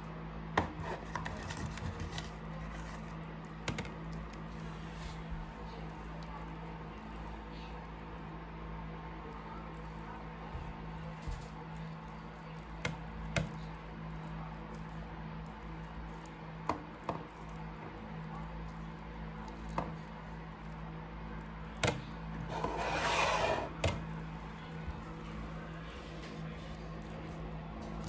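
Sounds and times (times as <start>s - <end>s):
wet slime rustle: 1.0s - 8.2s, 24.2s - 28.0s.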